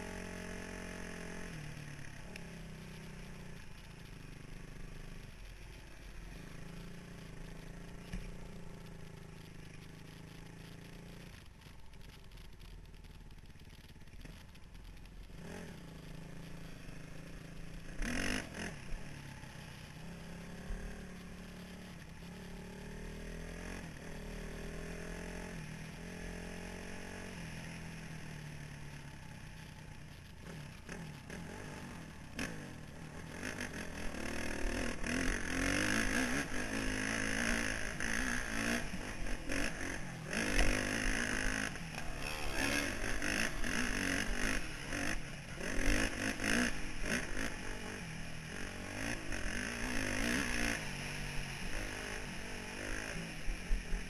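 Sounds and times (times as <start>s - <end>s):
dirt bike engine: 0.0s - 54.0s
second dirt bike revving: 30.4s - 54.0s.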